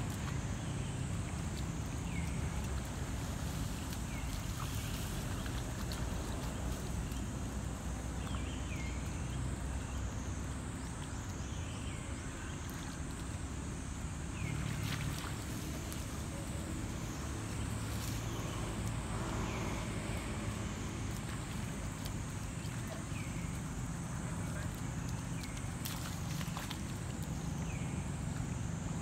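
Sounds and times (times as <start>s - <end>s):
splashes in muddy water: 14.4s - 28.1s.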